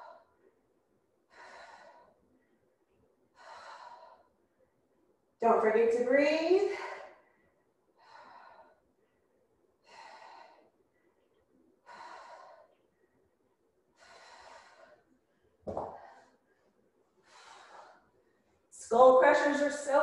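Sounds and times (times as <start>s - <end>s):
woman breathing hard: 0.0s - 0.6s, 1.2s - 2.6s, 3.3s - 4.5s, 6.7s - 13.3s, 13.9s - 18.7s.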